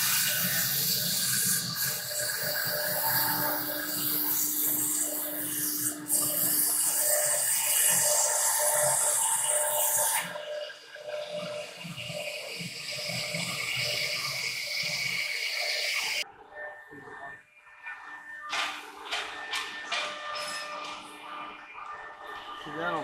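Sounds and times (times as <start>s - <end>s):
machine running: 0.0s - 16.6s.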